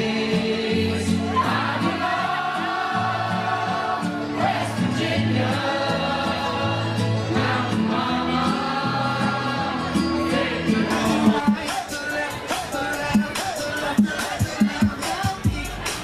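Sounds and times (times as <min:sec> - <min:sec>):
dance music with singing: 0:00.0 - 0:16.0.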